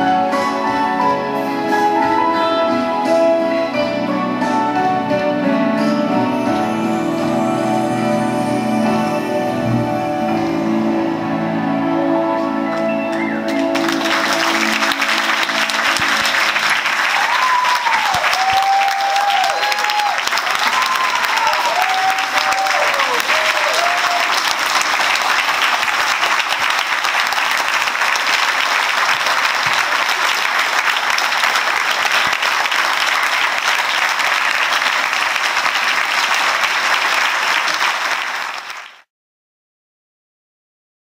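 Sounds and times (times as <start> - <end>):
audience applauding: 12.4 - 39.1.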